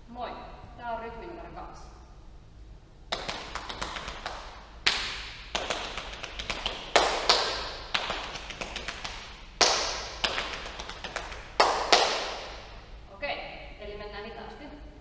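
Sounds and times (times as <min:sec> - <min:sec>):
hands slapping thighs: 0:03.1 - 0:12.6
hands clapping: 0:03.1 - 0:12.7.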